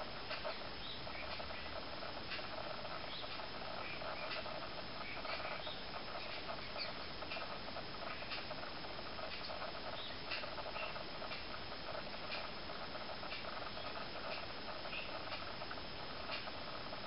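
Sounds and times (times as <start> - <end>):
birds chirping: 0.4 - 1.8, 2.5 - 7.2, 9.4 - 11.1, 13.7 - 15.3.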